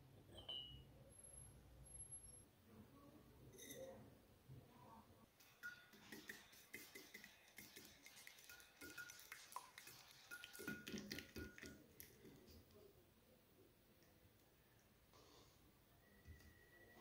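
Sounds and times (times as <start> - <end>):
glass dish ringing: 0.3 - 0.8
whisk tapping glass dish: 5.4 - 11.9.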